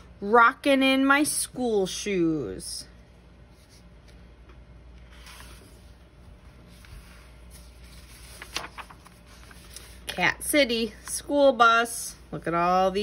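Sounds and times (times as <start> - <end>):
low hum: 2.8 - 9.9
book pages rustling: 3.4 - 10.2.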